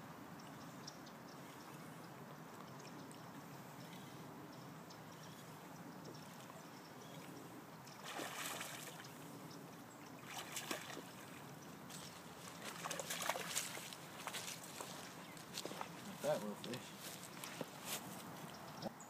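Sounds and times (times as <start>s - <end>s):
fish splashing at water surface: 8.0s - 9.0s, 10.3s - 11.4s, 12.6s - 14.4s.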